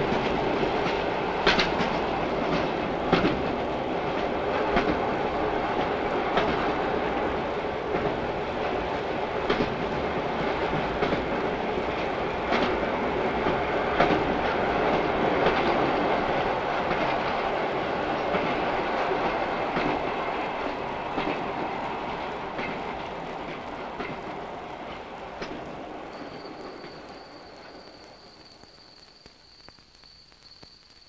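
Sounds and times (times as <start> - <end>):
train rumbling on rails: 0.0 - 30.2
wheels clacking over rail joints: 13.4 - 28.4.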